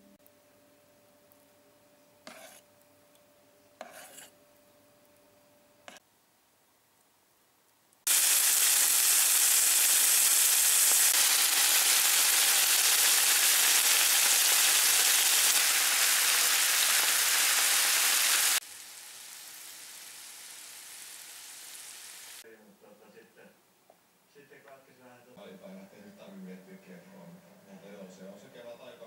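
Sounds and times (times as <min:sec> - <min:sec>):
food sizzling in a frying pan: 0:08.1 - 0:22.4.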